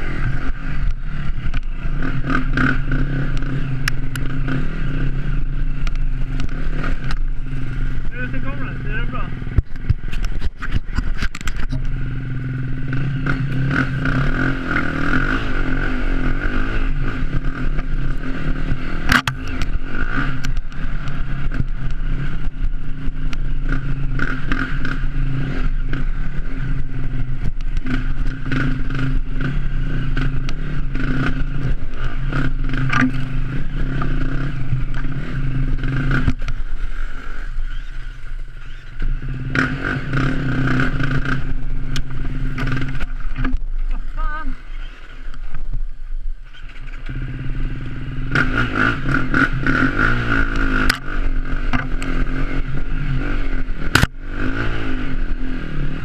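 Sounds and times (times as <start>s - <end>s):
dirt bike engine under throttle: 0.0s - 56.0s
bike knocking and rattling: 9.3s - 15.5s, 16.2s - 44.4s, 48.3s - 54.4s.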